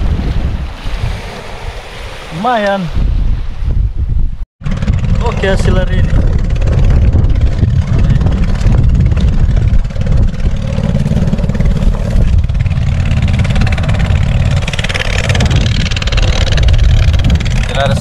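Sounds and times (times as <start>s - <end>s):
boat motor rumbling: 4.6s - 18.0s.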